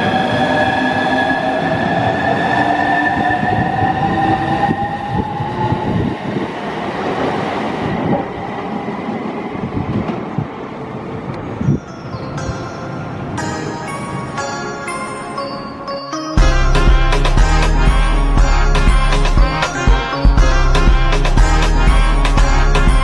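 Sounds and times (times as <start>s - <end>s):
train running noise: 0.0s - 15.6s.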